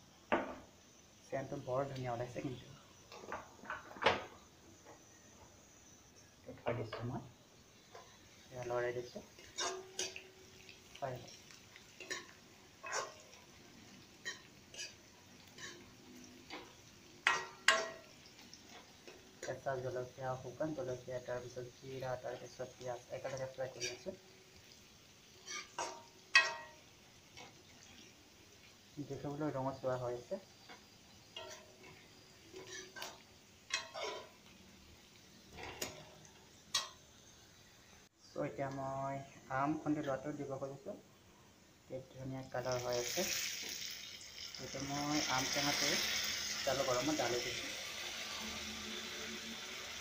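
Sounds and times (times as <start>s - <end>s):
metal spatula tapping a pan: 9.4s - 10.3s, 12.0s - 13.3s, 16.5s - 19.2s, 25.4s - 26.8s, 30.7s - 32.0s, 32.6s - 34.3s
metal ladle scraping wok: 9.4s - 10.6s, 12.0s - 19.5s, 25.4s - 26.7s, 30.6s - 34.5s, 35.5s - 36.1s.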